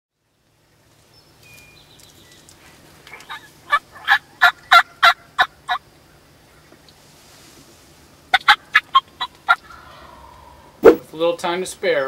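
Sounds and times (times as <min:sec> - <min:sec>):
turkey yelping: 0:03.1 - 0:05.8, 0:08.3 - 0:11.0.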